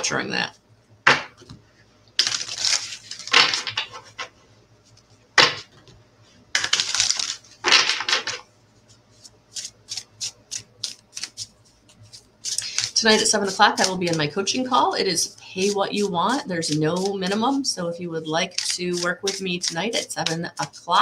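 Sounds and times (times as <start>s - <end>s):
cards shuffling: 2.2s - 4.3s, 6.6s - 8.4s, 9.1s - 14.7s, 15.6s - 17.6s, 18.4s - 20.8s.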